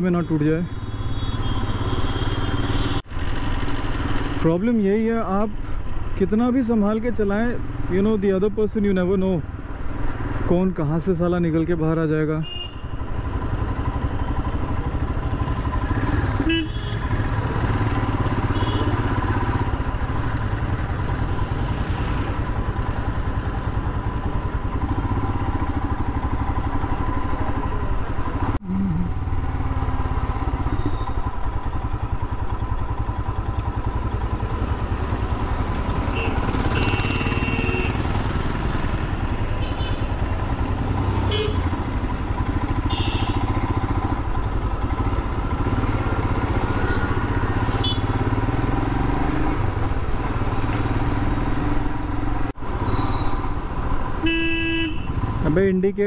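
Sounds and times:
motorcycle engine running: 12.7 - 55.6.

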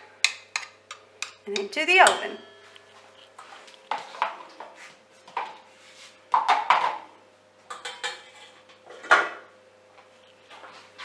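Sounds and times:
kitchenware clattering: 0.2 - 2.8, 7.7 - 9.4
mixing bowl clinking: 0.2 - 3.3.

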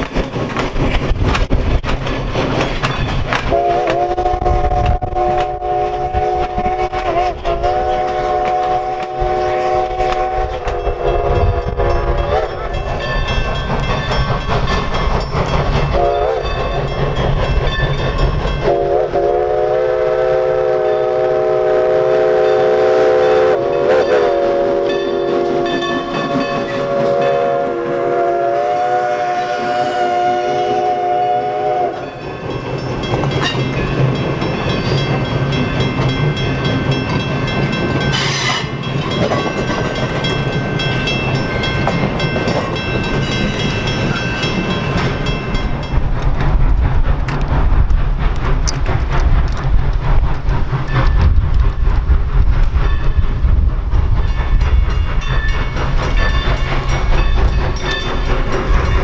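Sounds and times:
train wheels clattering on rails: 0.0 - 59.0
steam locomotive whistle: 3.5 - 12.8, 15.9 - 16.7, 18.6 - 32.3, 38.0 - 38.8
deep heavy rumble: 45.4 - 59.0.

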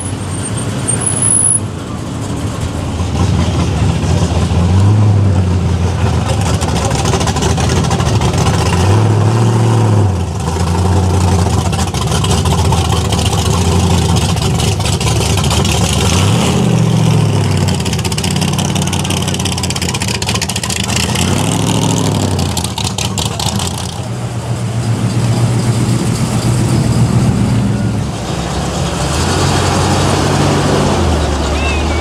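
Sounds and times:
engine revving: 2.9 - 32.0
v-eight engine rumbling idle: 10.3 - 16.0, 17.7 - 21.2.

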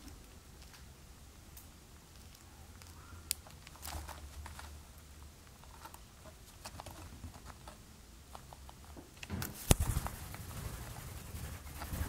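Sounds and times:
birds clicking and rustling: 2.2 - 4.8, 5.4 - 12.0.

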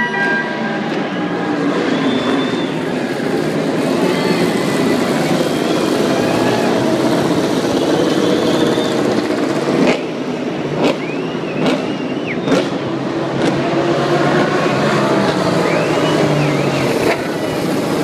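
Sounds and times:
motorcycle engines idling and revving: 0.0 - 18.0.

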